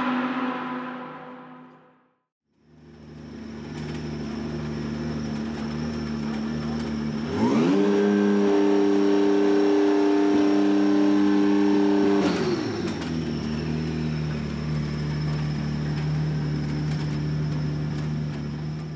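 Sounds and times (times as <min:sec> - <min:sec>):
car engine revving: 0:00.0 - 0:01.9, 0:06.8 - 0:17.0.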